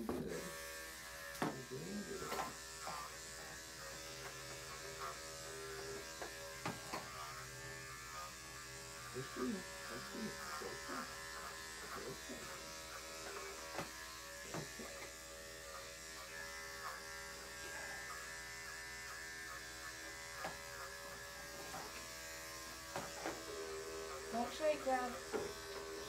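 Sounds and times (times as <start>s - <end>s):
electric clipper running: 0.0s - 26.0s.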